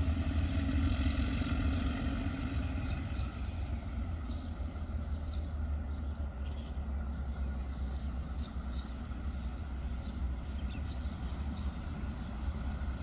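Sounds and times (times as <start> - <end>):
distant diesel locomotives rumbling: 0.0 - 13.0
birds chirping: 1.4 - 13.0.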